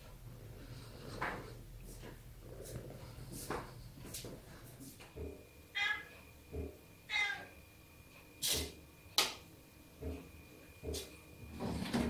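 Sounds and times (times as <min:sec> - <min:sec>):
cat meowing: 0:05.7 - 0:06.2, 0:07.1 - 0:07.6.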